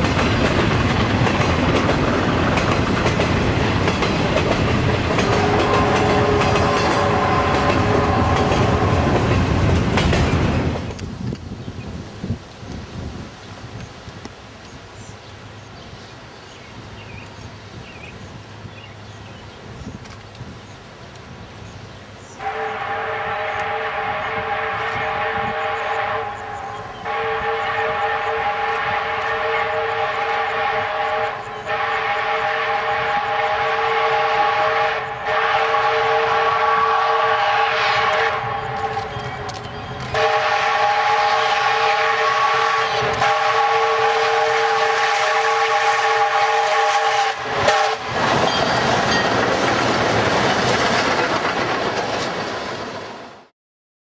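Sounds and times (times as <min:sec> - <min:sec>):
train rushing past: 0:00.0 - 0:11.4, 0:21.3 - 0:53.5
steam locomotive whistle blasts: 0:05.2 - 0:09.0, 0:22.4 - 0:39.2, 0:40.1 - 0:48.8.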